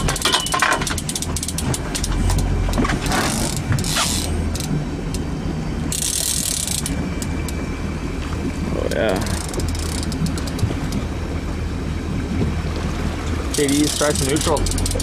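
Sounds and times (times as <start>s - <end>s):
boat motor drone: 0.0s - 15.0s
fishing reel ratchet clicking: 0.1s - 2.2s, 3.2s - 5.2s, 5.9s - 7.6s, 9.2s - 10.6s, 13.5s - 15.0s.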